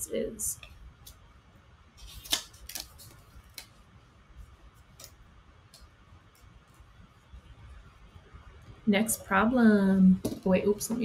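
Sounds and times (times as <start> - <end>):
paper rustling: 2.0 - 3.9.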